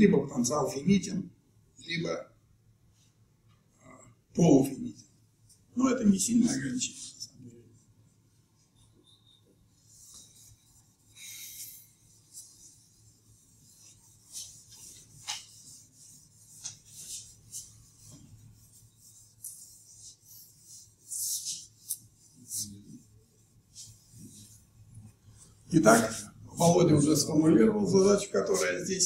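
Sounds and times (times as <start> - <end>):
eraser rubbing on chalkboard: 8.6 - 27.2.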